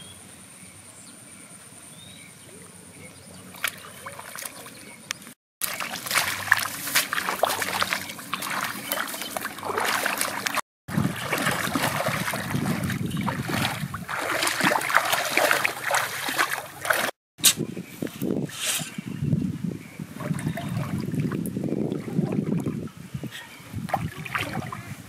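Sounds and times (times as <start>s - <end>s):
feet wading through muddy water: 3.3s - 17.2s, 20.1s - 23.1s, 23.7s - 25.0s.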